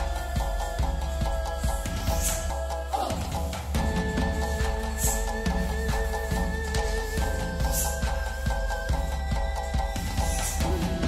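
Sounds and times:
music with steady drum beat: 0.0 - 11.0.

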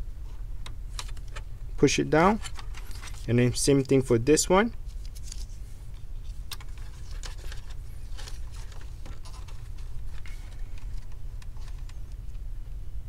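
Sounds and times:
steady low hum: 0.0 - 13.0
fingers handling a plastic connector: 6.4 - 12.4.

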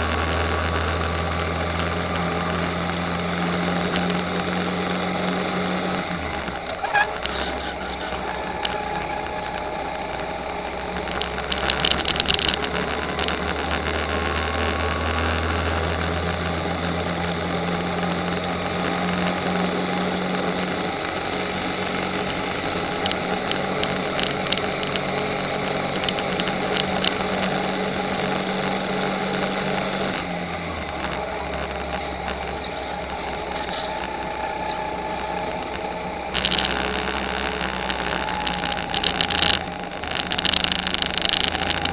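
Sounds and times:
kart engine running: 0.0 - 41.9
sharp rattling clicks: 6.1 - 17.1, 20.4 - 41.9.

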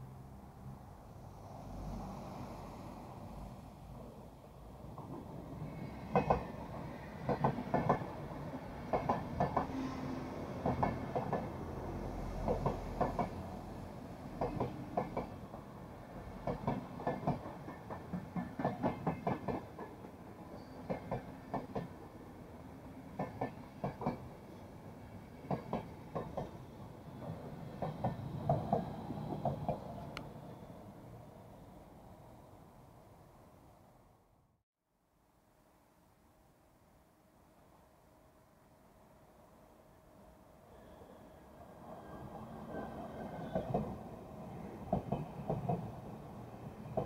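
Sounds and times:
electric locomotive passing: 0.0 - 33.6, 39.8 - 47.0
train rolling rumble: 0.6 - 31.3, 41.8 - 47.0
train wheels clattering over rail joints: 6.1 - 6.6, 7.2 - 8.1, 8.9 - 9.8, 10.6 - 11.5, 14.4 - 15.4, 16.4 - 20.0.

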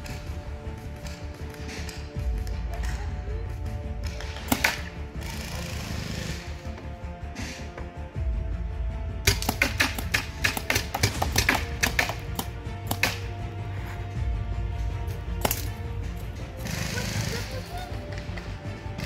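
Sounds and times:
background music: 0.0 - 19.0
paintball marker pops: 4.0 - 5.0, 9.3 - 13.3, 15.4 - 15.8.

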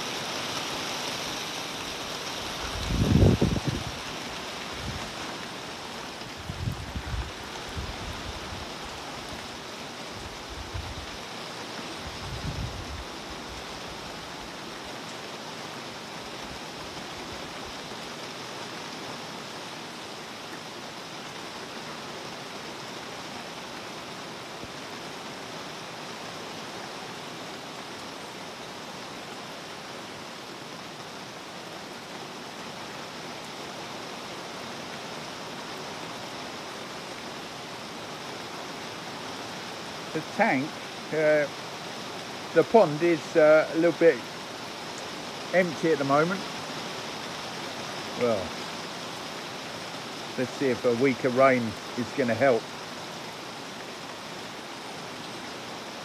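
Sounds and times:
rain falling on a pond: 0.0 - 56.0.

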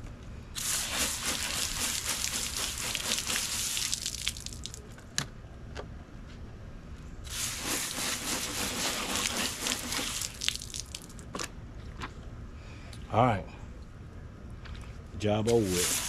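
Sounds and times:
hose nozzle spraying water: 0.6 - 4.6, 7.3 - 11.0, 15.5 - 16.0
water splattering on concrete: 0.6 - 4.8, 7.3 - 11.2, 15.6 - 16.0
water dripping: 3.6 - 4.8, 10.2 - 11.2.

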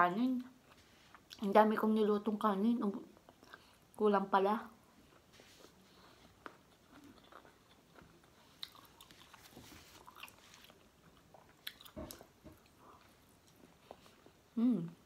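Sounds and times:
chewing with soft crunches: 3.1 - 4.0, 4.9 - 15.0.

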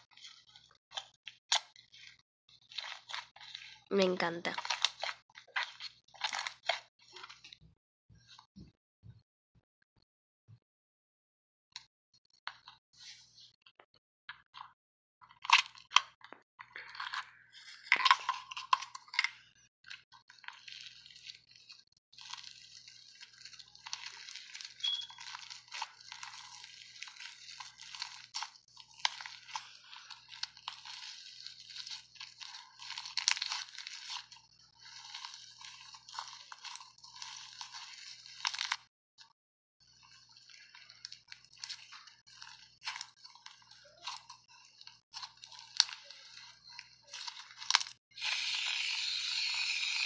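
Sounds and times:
slime crackling and popping: 0.0 - 7.5, 17.7 - 38.9, 39.9 - 50.0.

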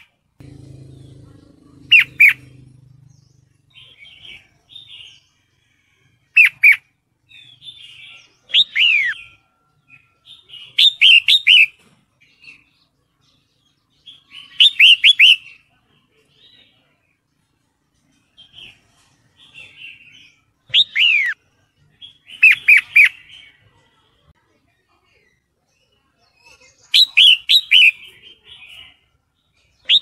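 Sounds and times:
bird chattering: 0.5 - 5.1, 6.4 - 6.9.

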